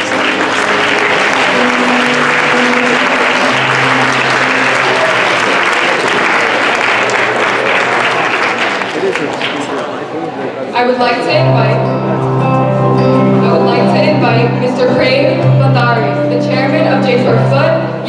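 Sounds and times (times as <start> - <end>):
held music notes: 0.0 - 7.6, 11.0 - 18.0
audience clapping: 0.0 - 10.2.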